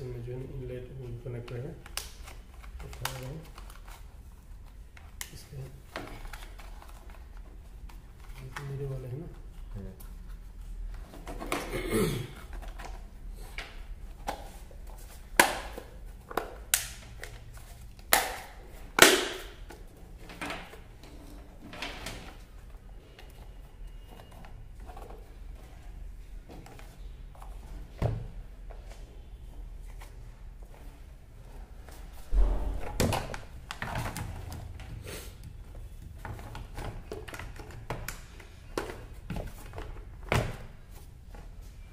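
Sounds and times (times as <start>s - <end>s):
plastic knocks and thuds: 32.2s - 34.9s.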